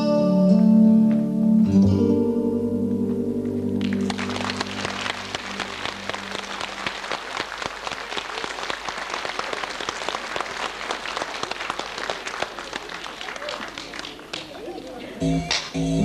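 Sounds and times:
audience applauding: 3.8s - 15.8s.

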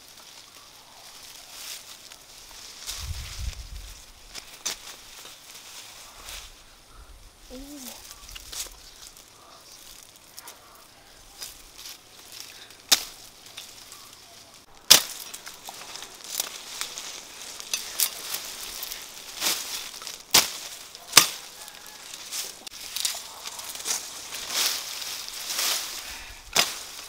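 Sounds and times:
leaves and stems rustling: 0.0s - 27.0s
machete chopping woody stalks: 11.4s - 13.8s, 14.8s - 27.0s.

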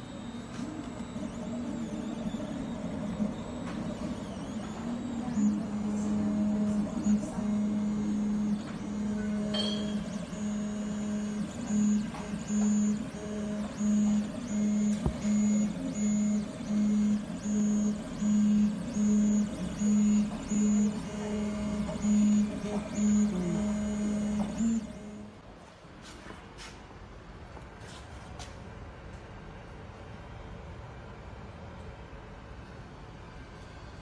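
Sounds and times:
stepper motors whining: 0.0s - 25.4s.

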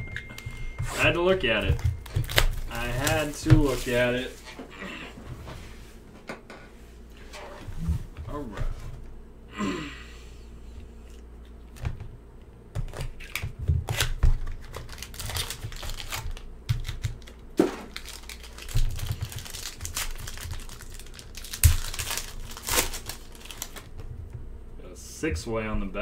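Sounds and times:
foil pack crinkling and tearing: 1.7s - 4.3s, 12.9s - 24.0s.

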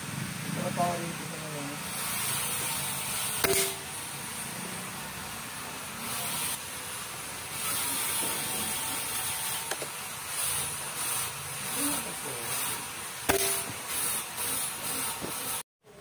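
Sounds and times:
air rifle shot: 3.4s - 3.8s.

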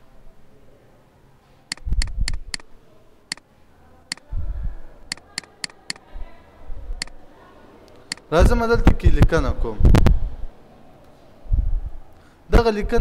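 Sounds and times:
computer mouse clicking: 1.7s - 2.6s, 5.1s - 6.0s, 7.9s - 8.3s.

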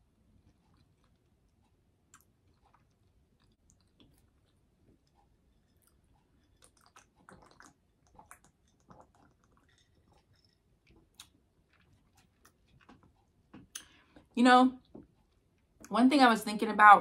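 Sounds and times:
chewing food: 0.0s - 15.9s.

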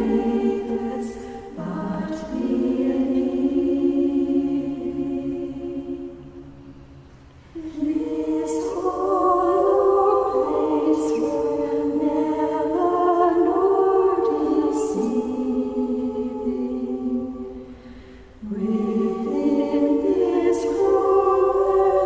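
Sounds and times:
choir singing: 0.0s - 6.9s, 7.5s - 22.0s.

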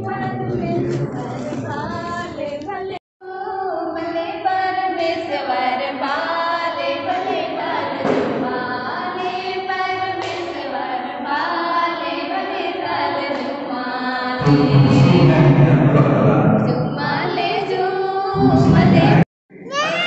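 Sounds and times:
congregation singing a hymn: 4.4s - 19.2s
loud low rumble: 14.4s - 17.2s, 18.4s - 19.2s.

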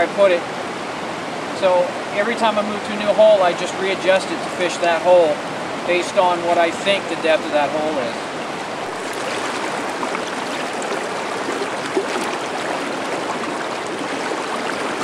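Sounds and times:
river water rushing over rocks: 0.0s - 15.0s.

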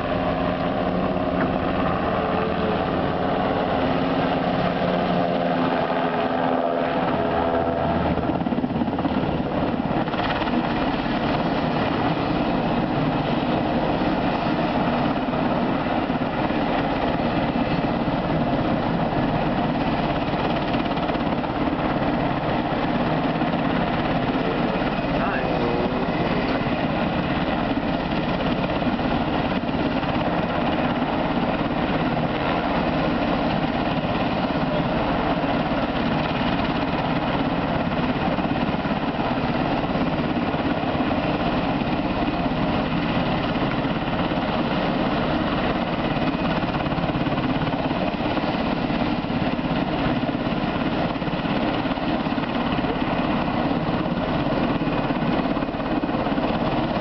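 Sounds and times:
helicopter rotor and turbine: 0.0s - 57.0s.

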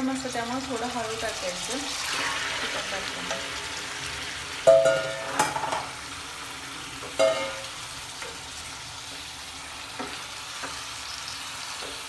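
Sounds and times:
chicken sizzling in hot oil: 0.0s - 12.0s
spatula striking pan: 4.6s - 6.0s, 7.0s - 8.4s.

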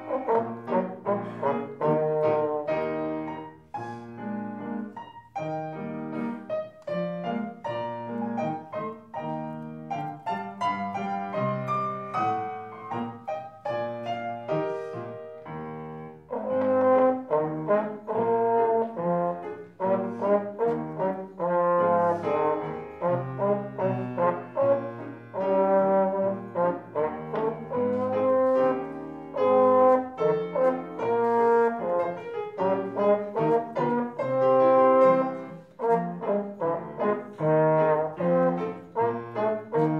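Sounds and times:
trombone solo melody: 0.0s - 3.4s, 16.2s - 39.9s
piano accompaniment: 0.0s - 39.9s.

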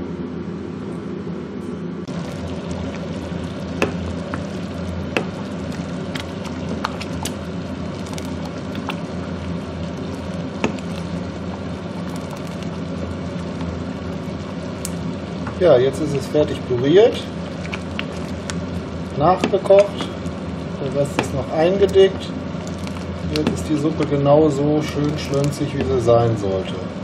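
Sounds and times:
steady low hum: 0.0s - 27.0s
spoon stirring thick soup: 2.1s - 9.2s, 9.9s - 14.2s
liquid simmering: 2.1s - 27.0s.

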